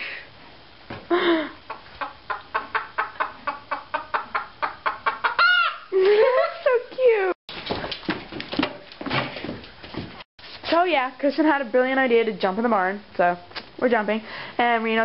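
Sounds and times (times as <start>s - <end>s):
chicken clucking: 1.8s - 5.9s
chicken squawk: 2.1s - 6.0s.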